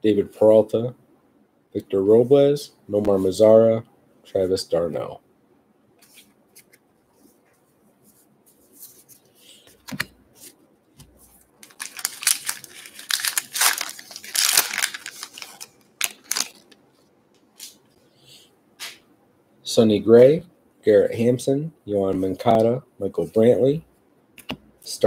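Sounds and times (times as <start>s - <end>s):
foil wrapper tearing: 11.6s - 16.8s.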